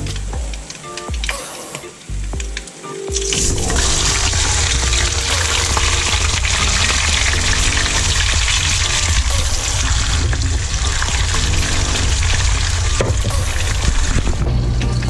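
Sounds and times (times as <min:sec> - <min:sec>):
fish sizzling in hot oil: 0:03.8 - 0:12.9.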